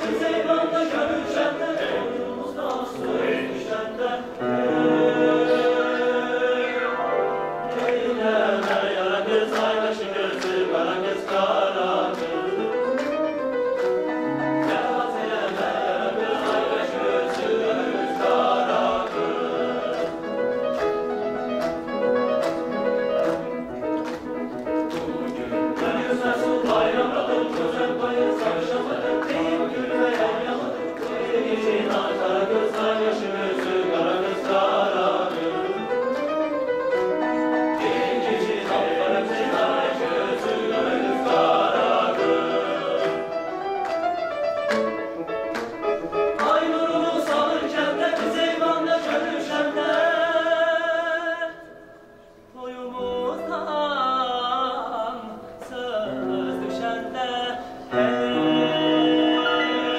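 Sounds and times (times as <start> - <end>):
rhythmic hand clapping: 0.0 - 6.5, 7.6 - 50.3
mixed choir singing: 0.0 - 44.1, 46.0 - 59.9.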